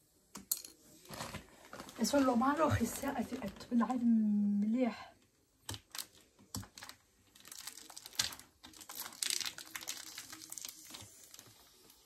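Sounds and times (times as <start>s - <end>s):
plastic bag rustling: 0.9s - 4.0s, 5.7s - 12.0s.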